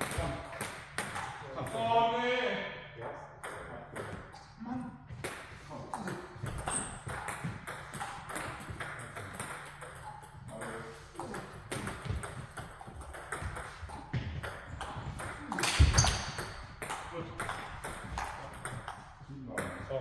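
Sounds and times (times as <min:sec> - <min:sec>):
ping pong ball clicking: 0:06.4 - 0:13.8.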